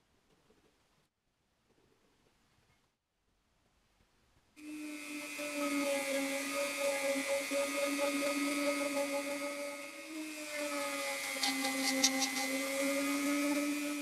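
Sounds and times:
rotary tool polishing steel: 4.6 - 14.0.

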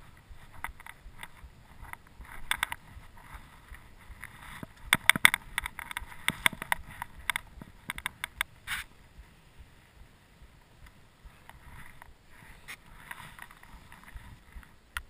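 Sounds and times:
bike and camera rattling clicks: 0.2 - 8.9, 10.8 - 15.0.

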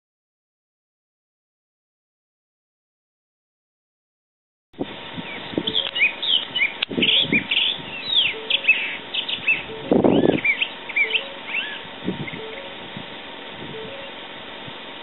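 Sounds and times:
small songbirds chirping: 5.2 - 12.8.

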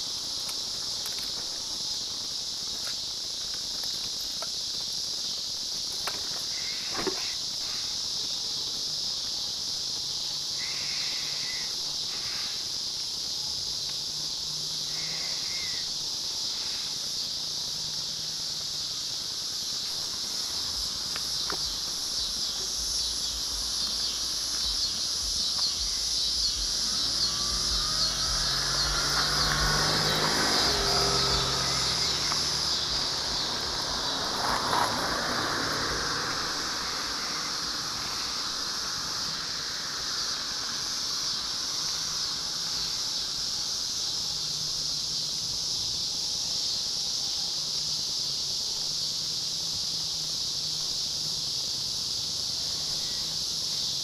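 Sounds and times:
high-pitched insect chorus: 0.0 - 54.0
car engine approaching: 13.2 - 47.0.

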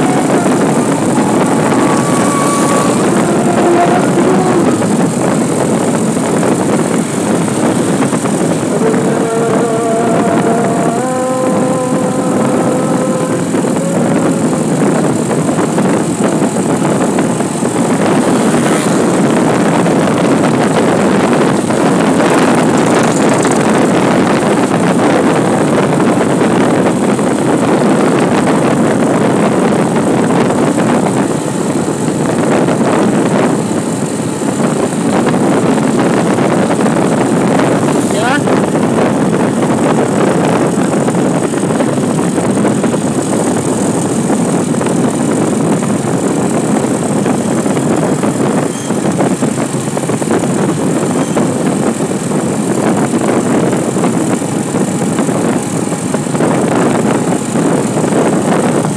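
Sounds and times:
steady tone: 0.0 - 24.6
wind and road noise: 0.0 - 58.9.

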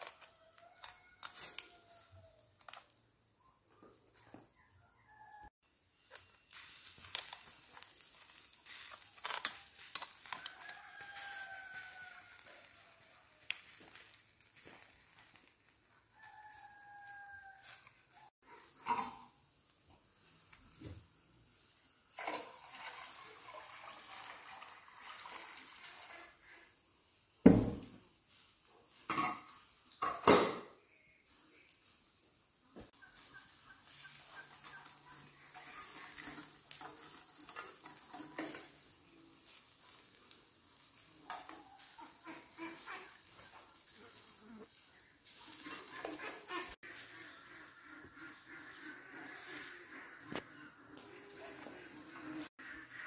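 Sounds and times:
rooster crowing: 0.0 - 2.5, 4.5 - 5.6, 10.2 - 13.4, 16.1 - 18.3
fat sizzling on hot charcoal: 0.0 - 53.0
metal samovar knocks: 27.5 - 28.0.

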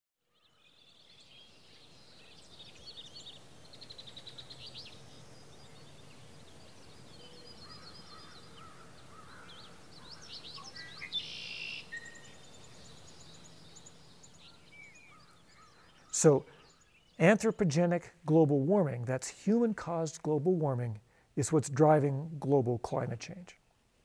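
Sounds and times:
birds chirping and trilling: 0.2 - 23.9
harsh bird call: 7.2 - 12.7.

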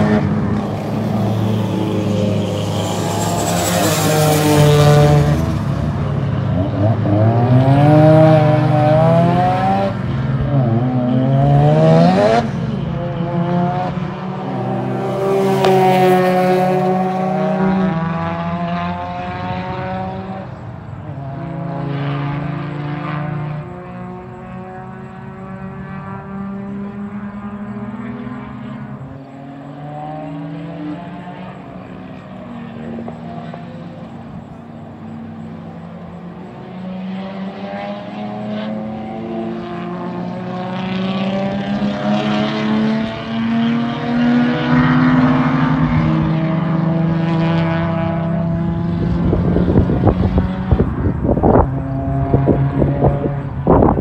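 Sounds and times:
racing car engines: 0.0 - 54.0
wind buffeting microphone: 48.6 - 54.0.

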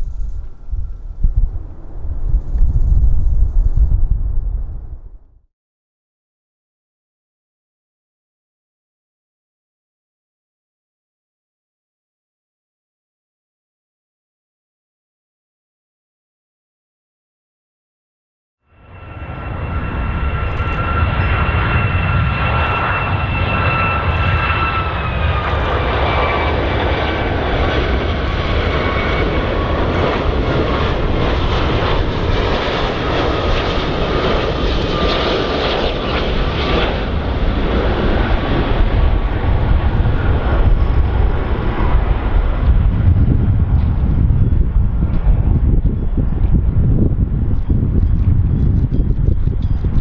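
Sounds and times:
jet airliner rumble with whine: 0.0 - 5.5, 18.7 - 50.0.

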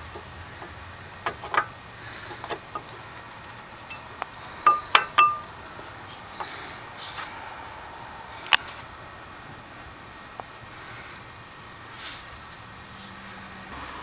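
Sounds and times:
brake pads clinking against metal: 0.0 - 7.3.

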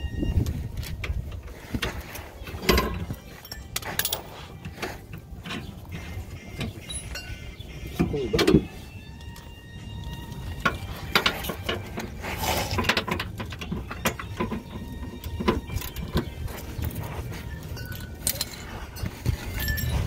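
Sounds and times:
metallic tool clinks and knocks: 2.6 - 4.7, 12.8 - 20.0.

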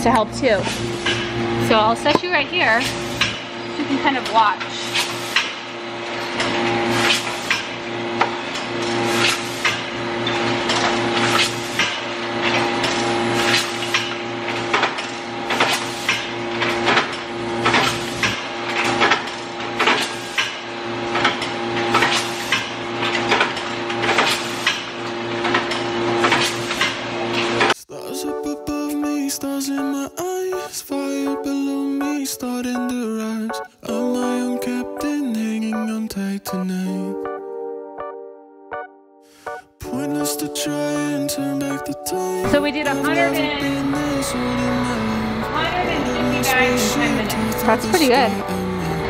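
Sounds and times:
bagging machine humming: 0.0 - 27.8, 42.4 - 49.0.

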